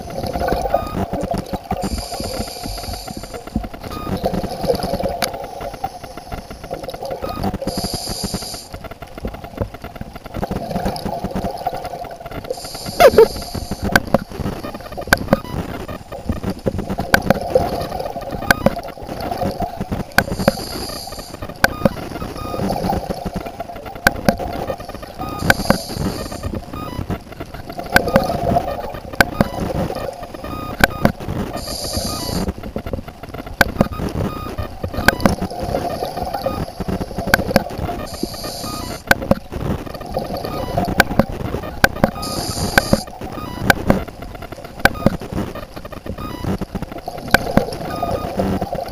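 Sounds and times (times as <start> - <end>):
regulator hissing inhale: 1.9 - 3.6, 7.7 - 8.8, 12.5 - 13.9, 20.4 - 21.4, 25.4 - 26.5, 31.6 - 32.5, 38.1 - 39.0, 42.2 - 43.0
sharp clicks: 25.3 - 27.0, 40.8 - 44.0.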